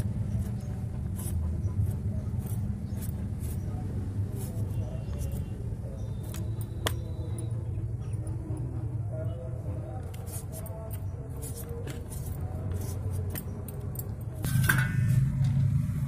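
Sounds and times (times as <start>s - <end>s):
vegetable peeler rasping: 0.0s - 7.0s, 10.2s - 13.4s.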